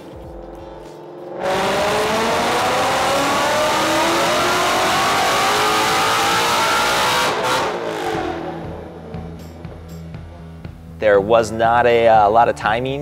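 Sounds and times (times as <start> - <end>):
engine revving at full throttle: 0.4 - 9.4.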